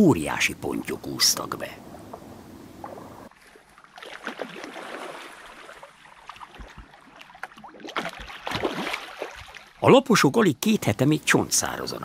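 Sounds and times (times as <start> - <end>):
fish splashing in shallow water: 1.8 - 9.8.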